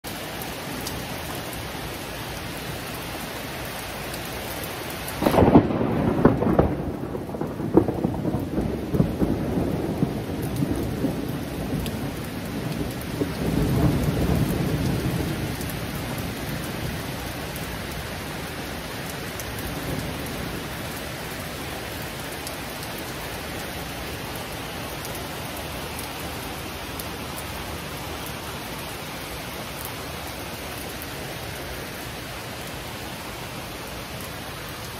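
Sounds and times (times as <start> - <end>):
heavy rain: 0.0 - 34.9
thunder: 5.2 - 16.8.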